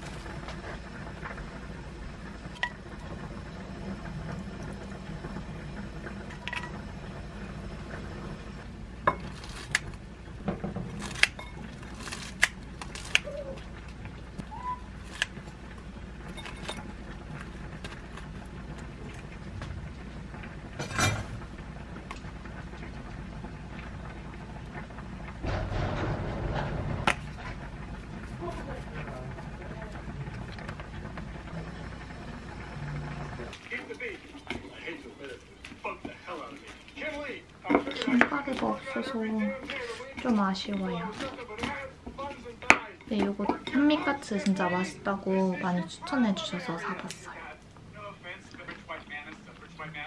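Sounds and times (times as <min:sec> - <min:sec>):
utensils clinking on ceramic bowl: 0:11.0 - 0:11.8, 0:16.3 - 0:16.9
low hum: 0:13.3 - 0:33.6
loud knock: 0:25.4 - 0:27.6.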